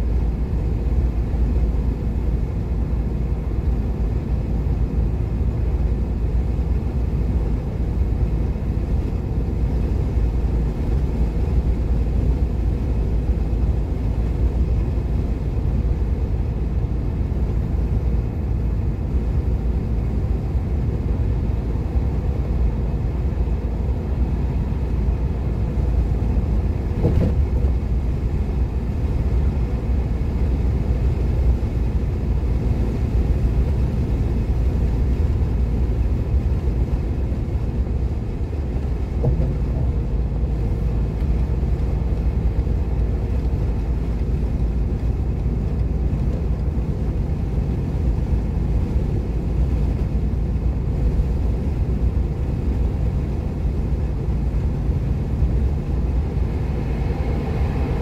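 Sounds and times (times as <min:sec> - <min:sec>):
road and engine rumble: 0:00.0 - 0:58.0
brief knock: 0:27.0 - 0:27.4.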